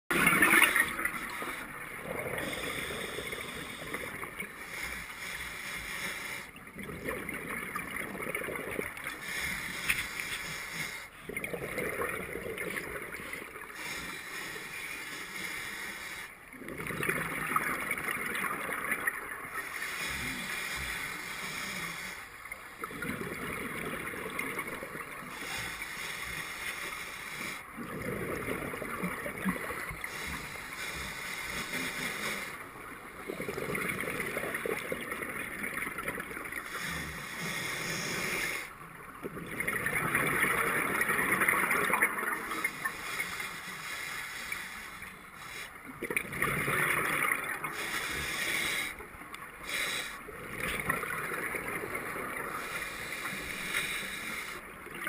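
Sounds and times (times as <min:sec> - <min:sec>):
exhaled bubbles gurgling: 0:00.1 - 0:14.7, 0:16.4 - 0:26.5, 0:27.3 - 0:43.4, 0:45.4 - 0:55.0
regulator inhalation hiss: 0:13.8 - 0:16.4, 0:19.6 - 0:22.3, 0:25.3 - 0:27.6, 0:30.0 - 0:32.7, 0:36.6 - 0:38.7, 0:42.9 - 0:45.8, 0:47.6 - 0:49.0, 0:49.6 - 0:50.2, 0:52.5 - 0:54.6.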